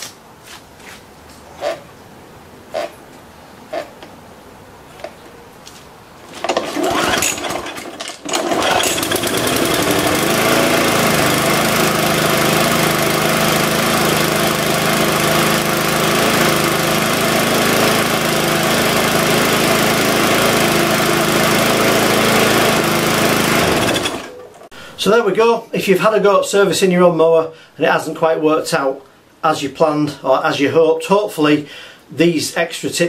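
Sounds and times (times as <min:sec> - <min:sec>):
lawn mower engine running: 0:06.2 - 0:24.8.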